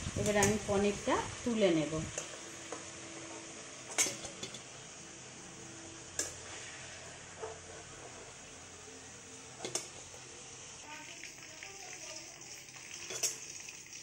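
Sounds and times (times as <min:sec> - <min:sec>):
hot oil sizzling: 0:00.0 - 0:14.0
spatula clinking on metal pan: 0:03.9 - 0:04.6.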